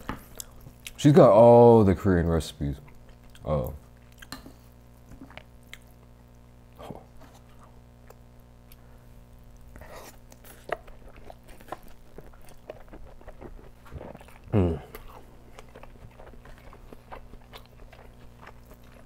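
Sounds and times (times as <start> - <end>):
faint low hum: 0.0 - 19.0
close chewing mouth sounds: 0.2 - 1.0, 2.8 - 4.4, 5.1 - 6.4, 9.5 - 19.0.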